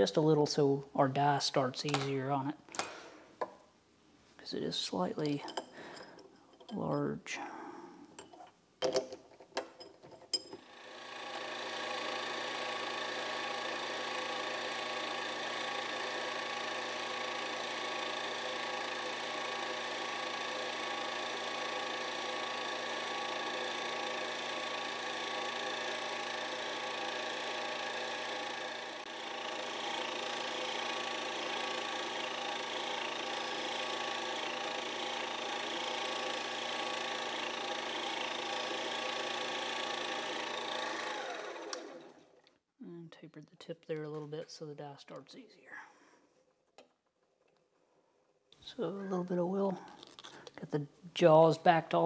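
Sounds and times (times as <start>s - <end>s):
lathe motor whining: 10.6s - 42.4s.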